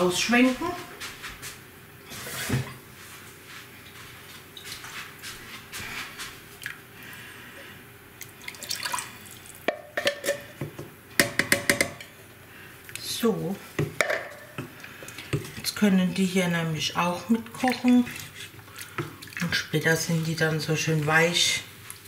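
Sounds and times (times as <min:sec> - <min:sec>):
water running and dripping: 0:08.2 - 0:09.7, 0:17.3 - 0:19.6.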